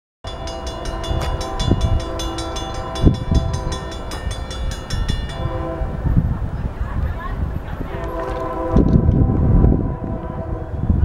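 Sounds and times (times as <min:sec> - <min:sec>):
crossing warning bell ringing: 0:00.2 - 0:06.8
train horn blasts: 0:00.3 - 0:06.5, 0:07.8 - 0:11.0.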